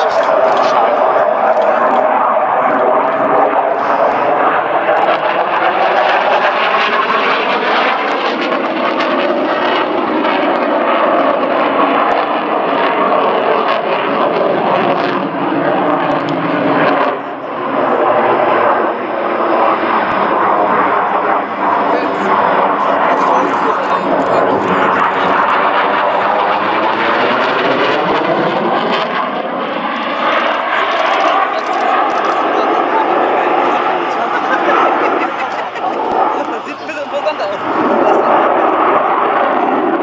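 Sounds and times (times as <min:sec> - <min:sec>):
fighter jet roaring: 0:00.0 - 0:40.0.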